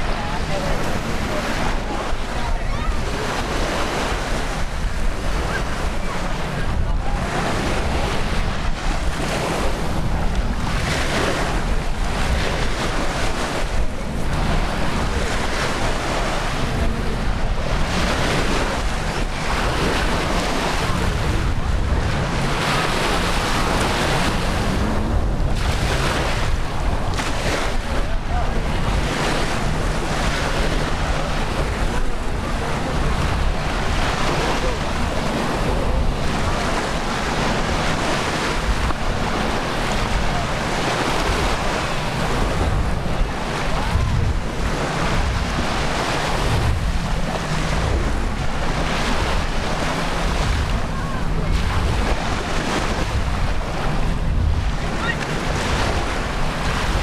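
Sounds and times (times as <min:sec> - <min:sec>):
ocean surf washing onto beach: 0:00.0 - 0:57.0
wind buffeting microphone: 0:00.0 - 0:57.0.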